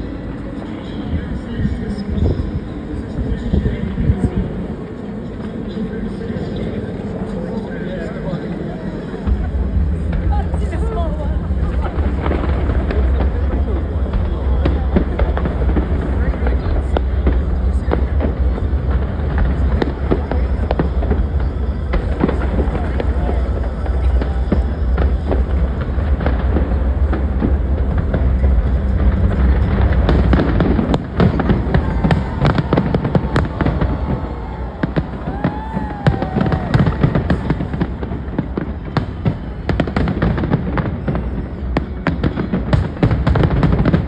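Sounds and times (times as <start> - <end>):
fireworks bangs and crackling: 0.0 - 44.0
low rumble of booms: 9.2 - 44.0.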